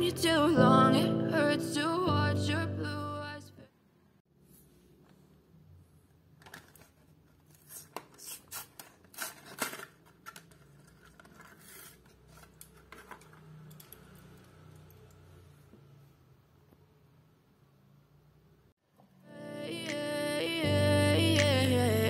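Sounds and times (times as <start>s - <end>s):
plastic and cardboard tearing: 6.4s - 13.1s.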